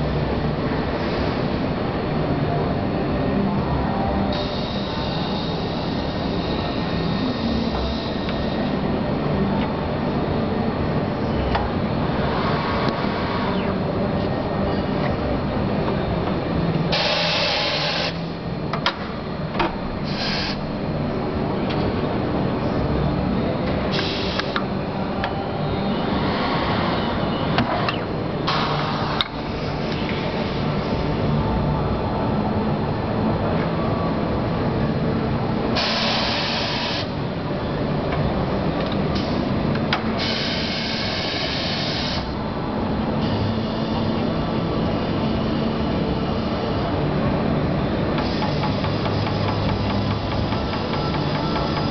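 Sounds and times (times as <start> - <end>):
compressed air hisses: 16.9 - 18.2, 20.1 - 20.6, 40.2 - 42.4.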